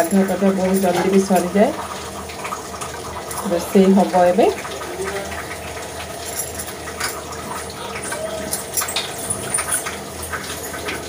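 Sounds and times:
water running from tap: 0:00.0 - 0:11.0
dishes clinking: 0:06.2 - 0:11.0.

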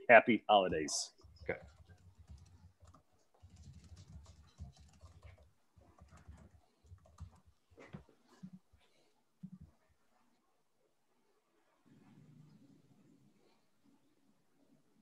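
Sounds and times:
faint computer keyboard typing: 0:01.1 - 0:08.6.

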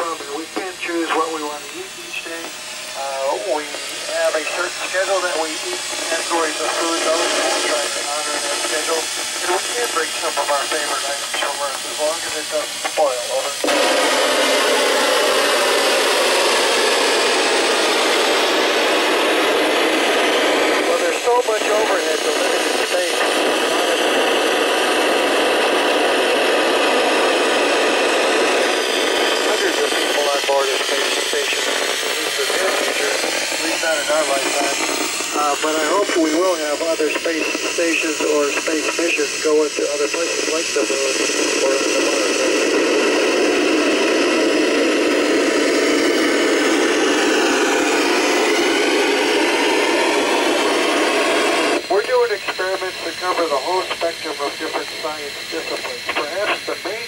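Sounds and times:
radio static hiss: 0:00.0 - 0:57.0.

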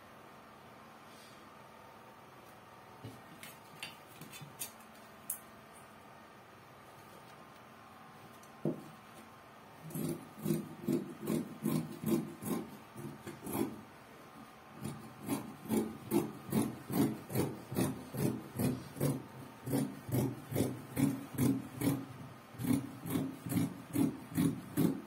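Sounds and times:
scissors snipping fabric: 0:09.9 - 0:13.8, 0:14.8 - 0:22.0, 0:22.6 - 0:25.0.

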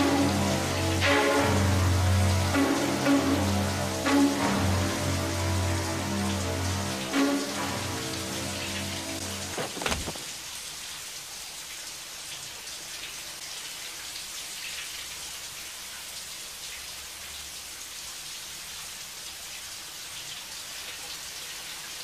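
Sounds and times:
music with long low notes: 0:00.0 - 0:09.6
shower water spraying: 0:02.6 - 0:10.8
brief clatter: 0:09.5 - 0:10.4.

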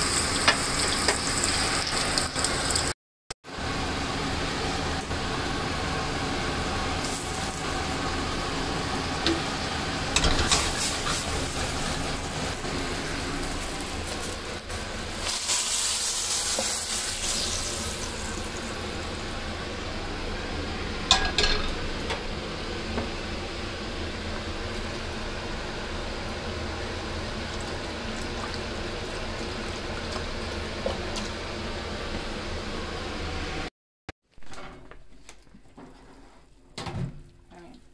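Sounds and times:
onions sizzling in a skillet: 0:00.0 - 0:02.9, 0:03.7 - 0:19.2
hot liquid hissing: 0:10.4 - 0:19.1
metal pan clattering: 0:21.1 - 0:21.8.

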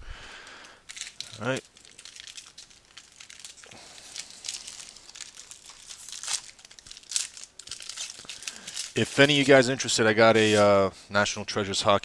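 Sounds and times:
card pack wrapper crinkling: 0:00.6 - 0:10.7
wrapper ripping: 0:00.9 - 0:10.7.

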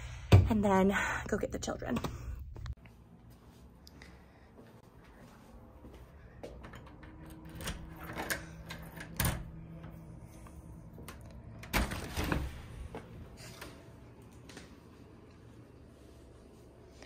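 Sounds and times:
door unlatching and opening: 0:06.6 - 0:10.0.

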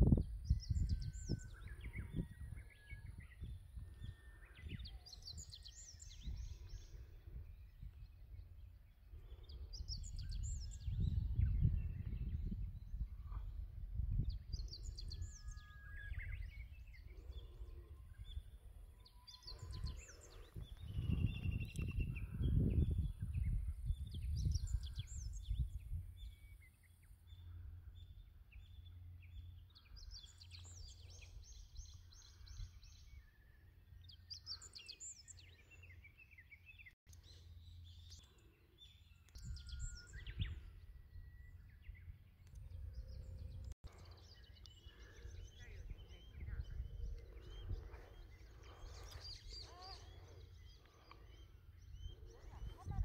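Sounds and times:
small birds chirping: 0:00.0 - 0:53.0
low microphone rumble: 0:05.9 - 0:26.5, 0:44.8 - 0:50.0.

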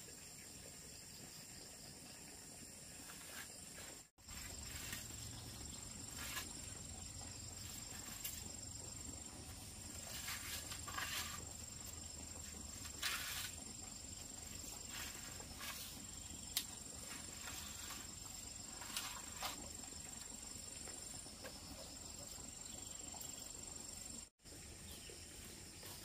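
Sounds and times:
scrapes and knocks: 0:03.0 - 0:22.4.

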